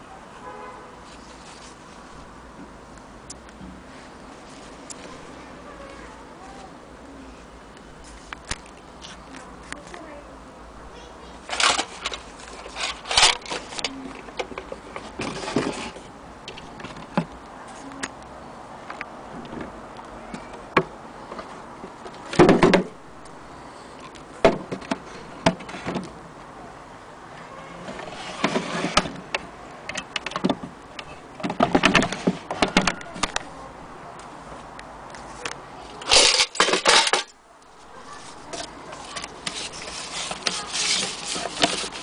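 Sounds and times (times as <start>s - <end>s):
clattering bursts: 11.5s - 13.8s, 36.0s - 37.3s
wooden cabinet knocks and clicks: 30.1s - 30.8s, 31.4s - 33.4s.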